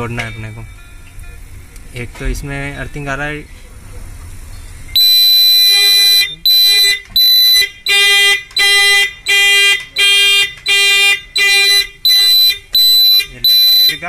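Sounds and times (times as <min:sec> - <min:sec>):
indicator buzzer beeping: 0:05.0 - 0:14.0.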